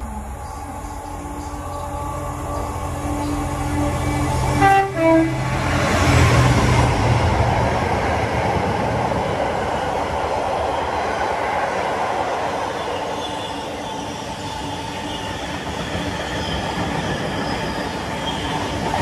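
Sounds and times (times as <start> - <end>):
train wagons running by: 0.0 - 19.0
locomotive horn notes: 3.6 - 5.7.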